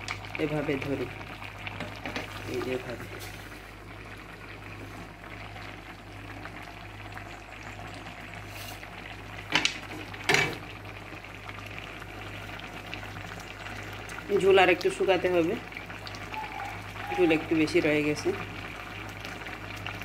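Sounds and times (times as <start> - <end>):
curry bubbling in a pot: 0.0 - 20.0
induction cooker hum: 0.0 - 20.0.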